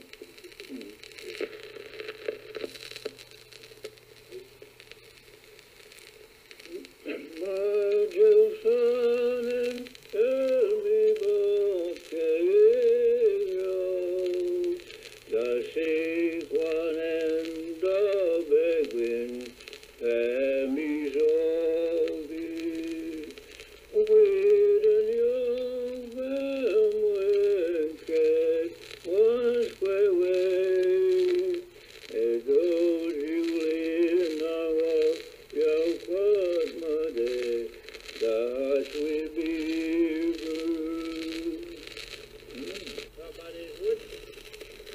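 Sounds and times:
faint steady hum: 0:00.0 - 0:44.9
person singing: 0:06.7 - 0:41.9.

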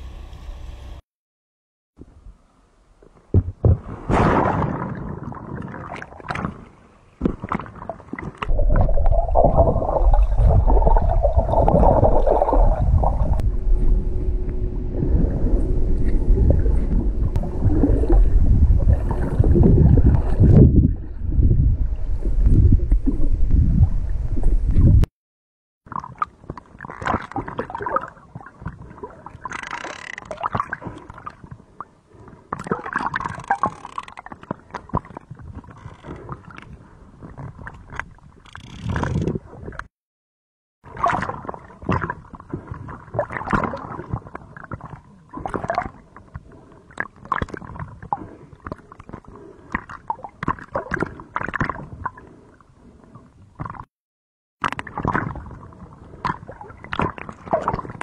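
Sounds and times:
rushing bubbles: 0:07.4 - 0:13.6, 0:14.9 - 0:21.6, 0:40.9 - 0:46.0
underwater gurgling and bubbling: 0:07.4 - 0:25.1, 0:40.9 - 0:53.9
loud low rumble: 0:09.6 - 0:20.0
clicks and crackles: 0:29.4 - 0:30.5, 0:33.2 - 0:36.7, 0:37.4 - 0:39.9.

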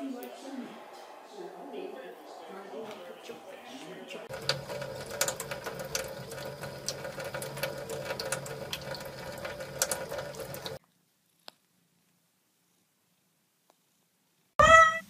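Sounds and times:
faucet water running into sink: 0:04.3 - 0:10.8
sharp clicks and splashes: 0:04.3 - 0:10.8.

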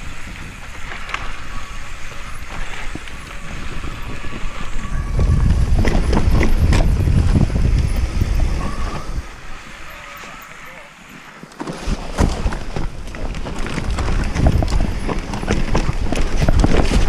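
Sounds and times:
bike rattling and clattering: 0:00.0 - 0:17.0
bike tyres rumbling over dirt: 0:00.0 - 0:17.0.

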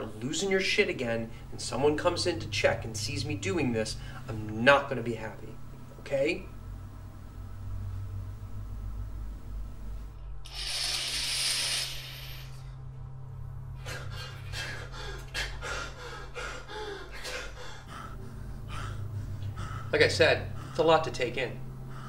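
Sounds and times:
low hum: 0:00.0 - 0:22.0
man breathing hard and gasping: 0:13.8 - 0:20.8, 0:21.6 - 0:22.0.

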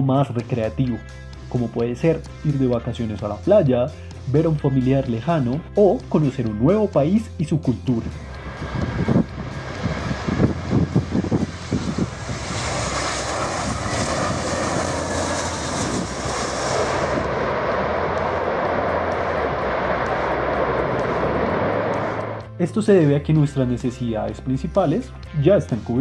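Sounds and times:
jet engine noise: 0:08.0 - 0:22.6
steady rushing noise: 0:08.0 - 0:23.2
low gusty rumbles: 0:08.0 - 0:23.3.

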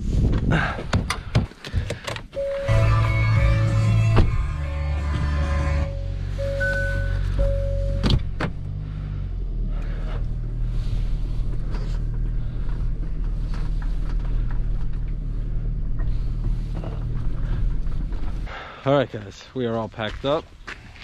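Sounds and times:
car engine running: 0:02.4 - 0:20.1
tyres crunching on gravel: 0:16.2 - 0:21.0.

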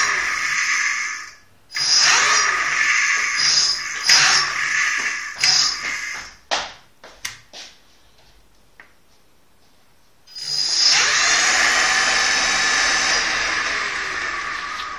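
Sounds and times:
electric motor whine: 0:10.4 - 0:14.9.

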